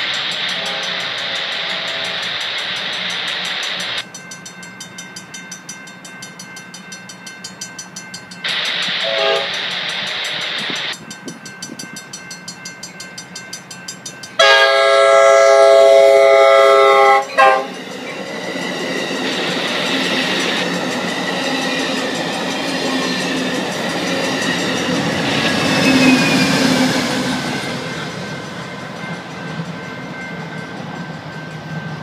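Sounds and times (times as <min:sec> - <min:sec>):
crossing warning bell ringing: 0:00.0 - 0:32.0
train horn blasts: 0:00.4 - 0:01.1, 0:09.0 - 0:09.7, 0:14.4 - 0:17.8.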